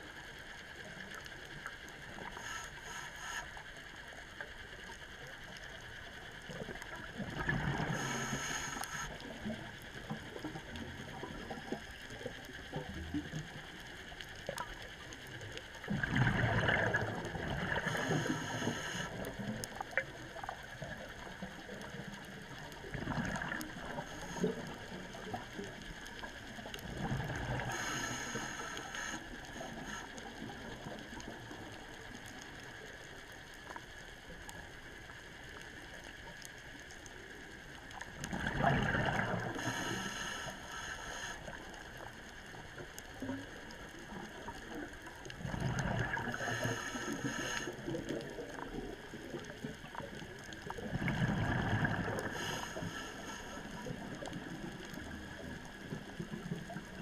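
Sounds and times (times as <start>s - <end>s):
faint clicks: 0.0s - 57.0s
scuba regulator breathing: 2.2s - 3.7s, 7.7s - 9.3s, 17.6s - 19.5s, 27.5s - 30.4s, 39.1s - 42.0s, 46.1s - 48.3s, 51.6s - 54.3s.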